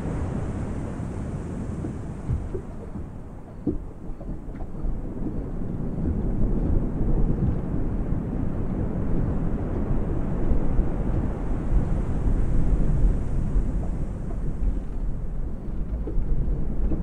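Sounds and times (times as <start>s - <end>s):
distant thunder rumbling: 0.0s - 17.0s
waves lapping against hull: 0.0s - 17.0s.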